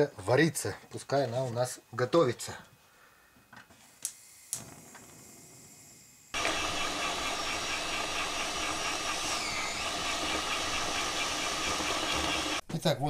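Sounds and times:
electric meat grinder running: 0:06.4 - 0:12.6.

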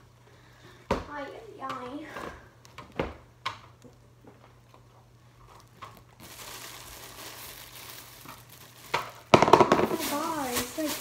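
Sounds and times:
paper bedding rustling and crinkling: 0:05.4 - 0:11.0.

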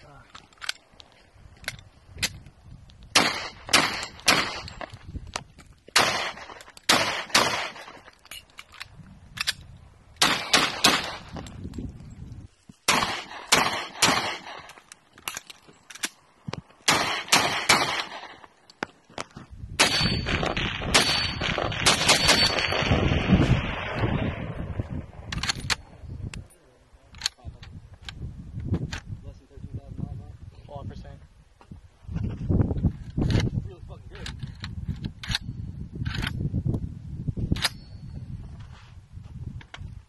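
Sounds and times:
wind rumbling on microphone: 0:00.0 - 0:14.7, 0:19.1 - 0:40.0
pistol shots: 0:03.2 - 0:04.8, 0:06.0 - 0:08.0, 0:10.2 - 0:11.3, 0:12.9 - 0:14.7, 0:16.9 - 0:18.5, 0:19.8 - 0:24.6
microphone handling noise: 0:27.5 - 0:29.2, 0:31.6 - 0:37.6.

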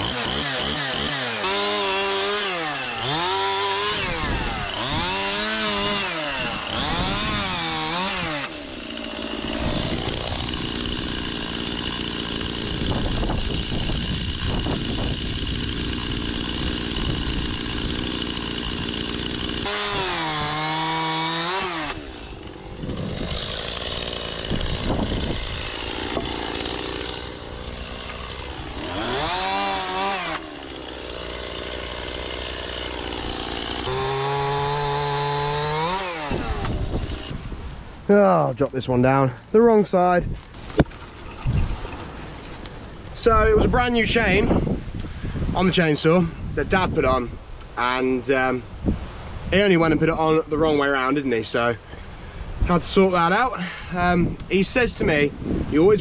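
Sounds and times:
chainsaw revving and cutting: 0:00.0 - 0:37.5.

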